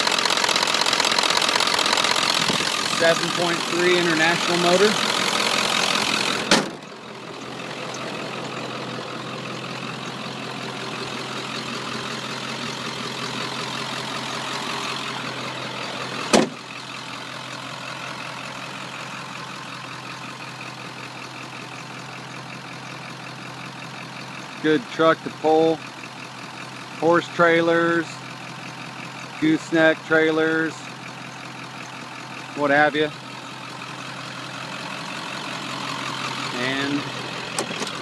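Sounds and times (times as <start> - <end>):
diesel engine idling: 0.0 - 38.0.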